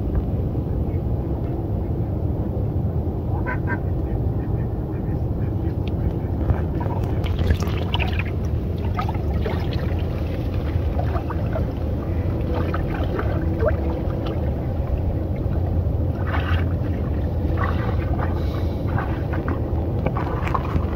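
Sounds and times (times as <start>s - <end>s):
low rumble: 0.0s - 20.9s
hands splashing water: 6.6s - 20.9s.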